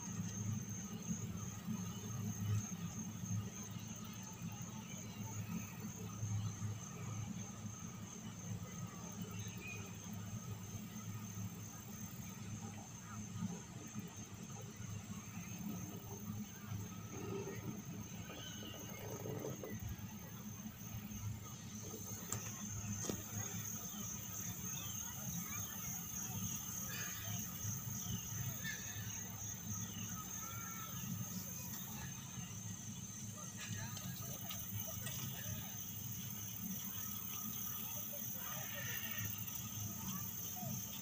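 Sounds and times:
chairlift low hum: 0:00.0 - 0:39.0
high-pitched pulsing whine: 0:00.0 - 0:41.0.

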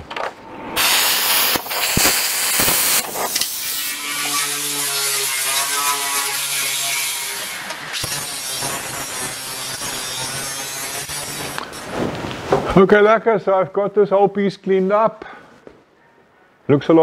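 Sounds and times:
plasma cutter hissing: 0:00.8 - 0:11.9
wire brush scratching steel: 0:00.8 - 0:12.0
angle grinder motor humming: 0:03.4 - 0:11.8.

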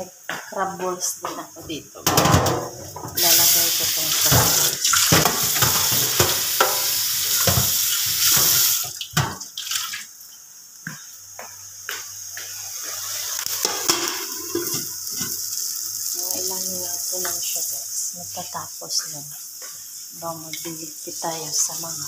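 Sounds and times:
tap water running into sink: 0:02.1 - 0:10.1.

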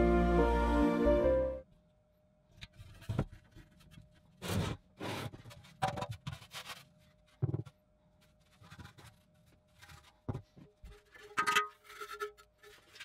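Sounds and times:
metal can scraping and clunking: 0:10.4 - 0:13.0.

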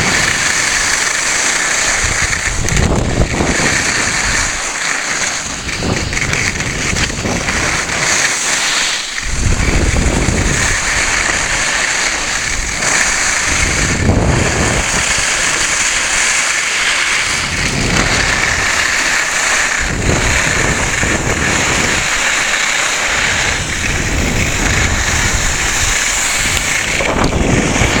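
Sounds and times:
skis hissing over packed snow: 0:00.0 - 0:28.0
wind rushing over microphone: 0:00.0 - 0:28.0
low rumble: 0:08.8 - 0:16.1.

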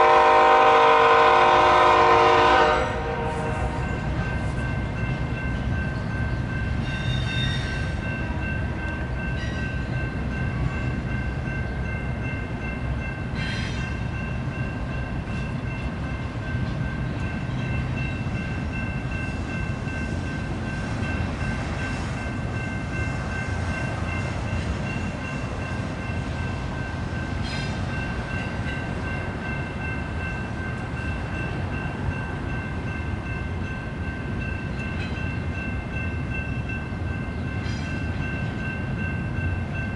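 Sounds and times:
freight train wheels rumbling: 0:00.0 - 0:39.9.

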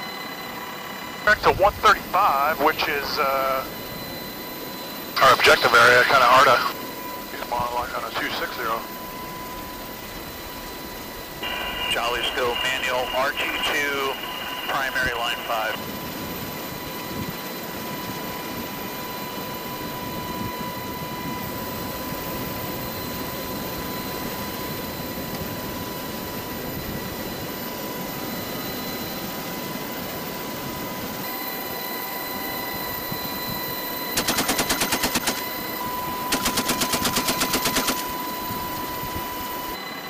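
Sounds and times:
helicopter in flight: 0:00.0 - 0:40.0
machine gun firing bursts: 0:34.2 - 0:35.4, 0:36.3 - 0:38.0.

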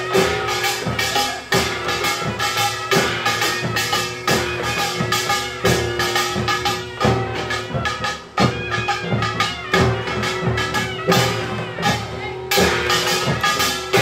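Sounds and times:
barrel drums in driving rhythm: 0:00.0 - 0:14.0
small gong clanging: 0:00.0 - 0:14.0.

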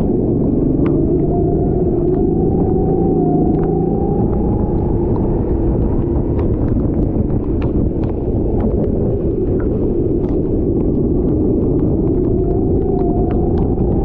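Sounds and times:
wind and track rumble: 0:00.0 - 0:14.0
sharp ticks and rattles: 0:03.4 - 0:14.0.

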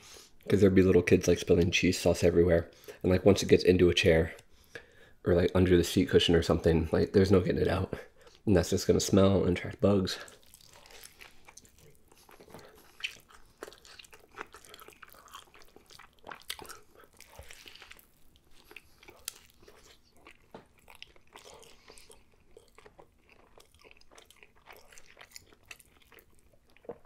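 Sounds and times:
person chewing food: 0:10.2 - 0:27.0.

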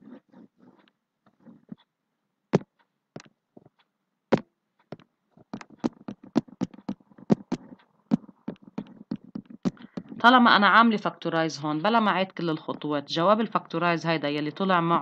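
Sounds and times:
stylus tapping on tablet: 0:02.5 - 0:10.4.

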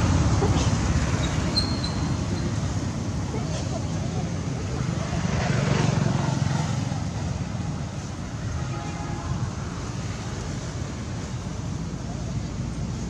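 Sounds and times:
vehicle passing by: 0:00.0 - 0:08.5
road traffic rumble: 0:00.0 - 0:13.0.

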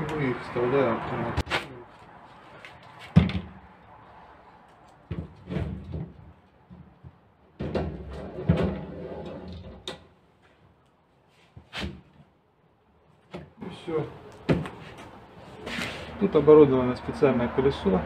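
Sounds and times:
knocks and scraping: 0:04.6 - 0:10.7, 0:13.2 - 0:16.2.

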